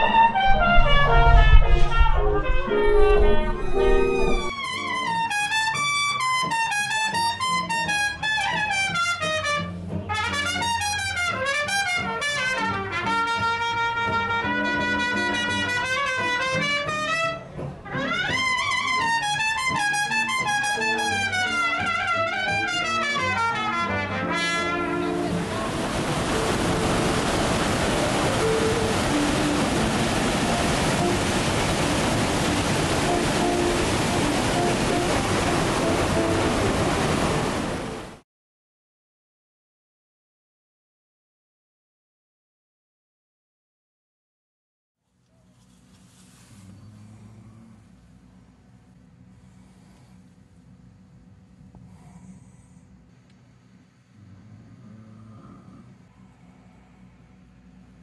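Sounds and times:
upright bass: 0.0 - 4.5
guitar: 0.0 - 36.9
trumpet melody: 0.0 - 38.0
churning wake water: 0.0 - 38.2.

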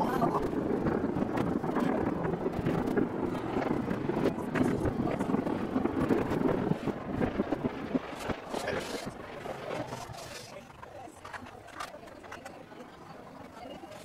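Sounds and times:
steady noisy background: 0.0 - 14.0
wind on microphone: 0.0 - 14.0
muffled fireworks bangs and pops: 0.3 - 10.0.

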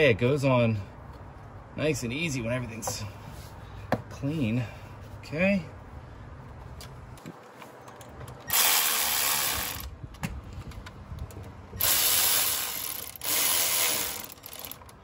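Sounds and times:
cordless electric ratchet running: 8.5 - 9.9, 11.8 - 15.0.

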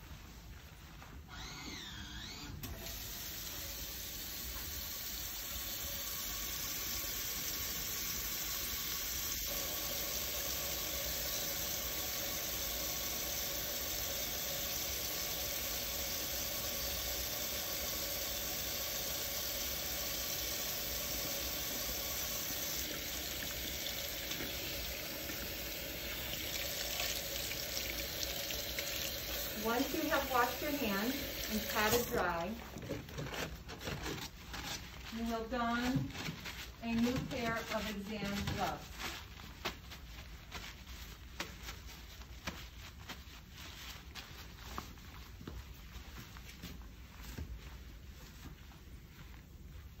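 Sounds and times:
tap water running into sink: 4.3 - 32.3.

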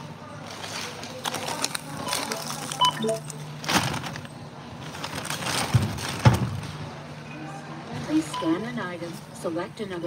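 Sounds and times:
groceries knocking and rustling: 0.0 - 7.0.

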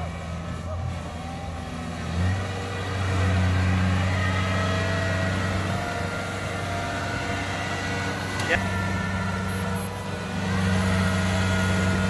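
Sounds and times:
harvester engine running under load: 0.0 - 12.0.

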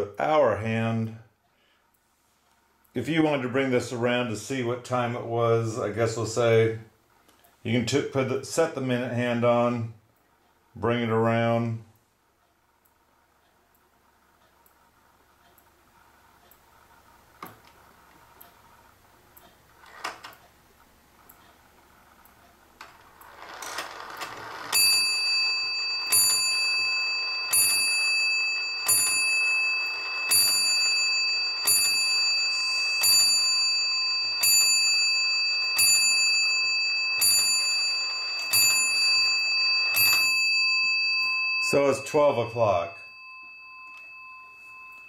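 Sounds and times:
clock bell striking: 24.5 - 45.0.

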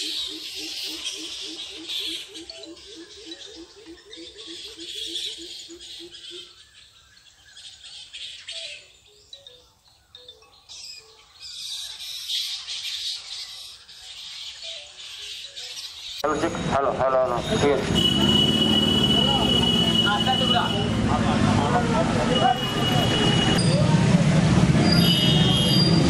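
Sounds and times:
fruit bats squeaking and squawking: 0.0 - 16.4.

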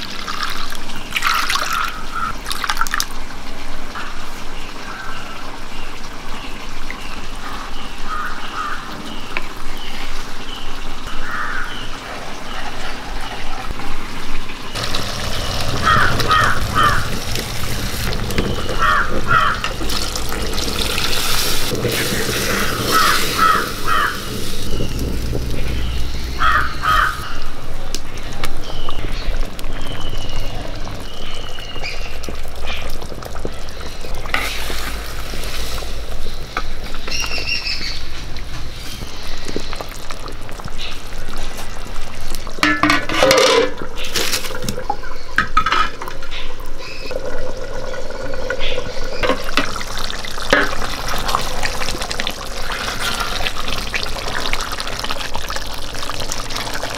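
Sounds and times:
gravy bubbling and frying: 0.0 - 8.5, 9.1 - 56.9
birds calling: 14.7 - 41.2
ladle stirring in a clay pot: 48.6 - 56.9.

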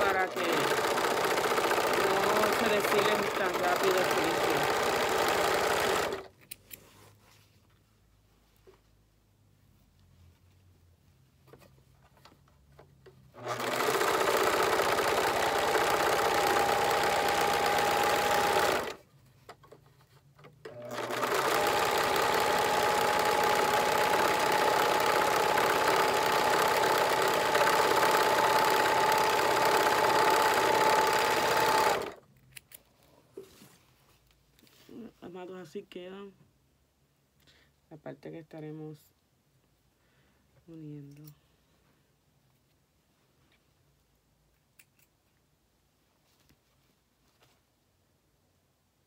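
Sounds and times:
sewing machine whining: 0.0 - 6.3, 13.3 - 19.0, 20.6 - 32.2.

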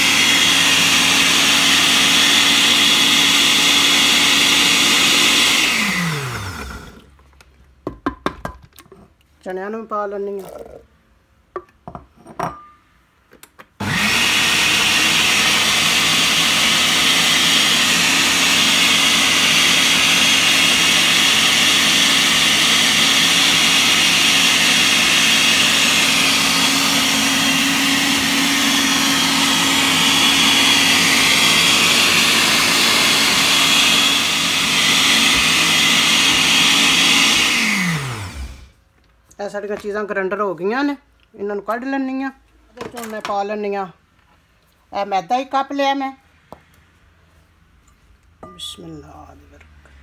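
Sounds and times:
blender motor grinding: 0.0 - 7.1, 13.8 - 38.8.

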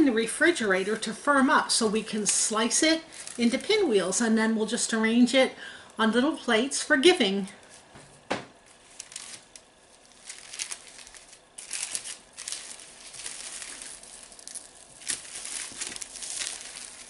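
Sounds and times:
cellophane wrap crinkling: 2.1 - 4.1, 8.6 - 17.0.

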